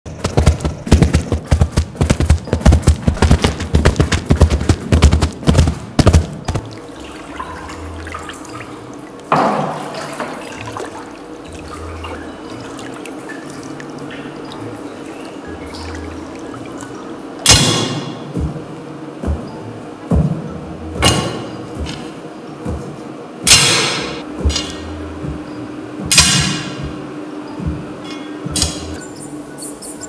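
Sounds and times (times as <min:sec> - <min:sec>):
plunger thumps and crunches: 0:00.1 - 0:06.8
water sloshing in a tub: 0:06.2 - 0:17.4.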